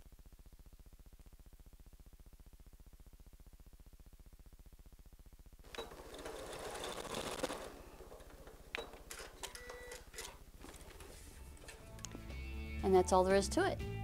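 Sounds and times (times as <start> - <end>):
sewing machine stitching: 5.7 - 11.2
sewing machine clicks: 5.7 - 11.8.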